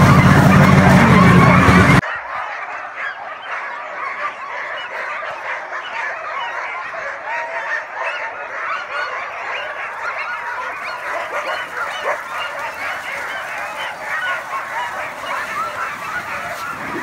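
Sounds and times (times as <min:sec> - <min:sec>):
dogs yelping and barking: 0:00.0 - 0:17.0.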